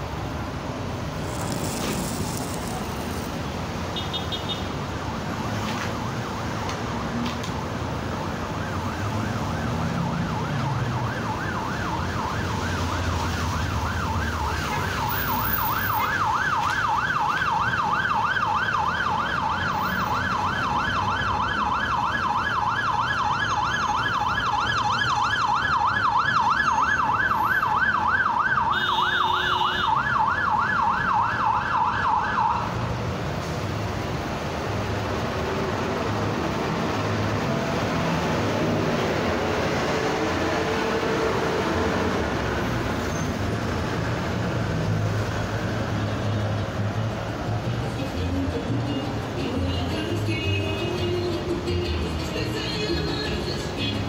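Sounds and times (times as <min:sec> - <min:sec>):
rumble of road traffic: 0:00.0 - 0:54.0
ambulance siren yelping: 0:08.4 - 0:32.8.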